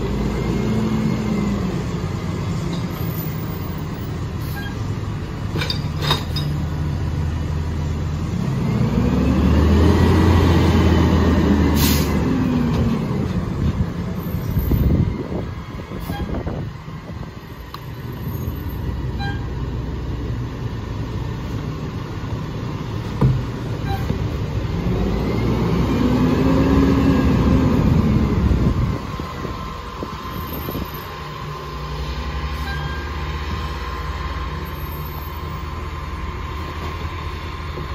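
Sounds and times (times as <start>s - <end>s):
truck engine idling and revving: 0.0s - 37.9s.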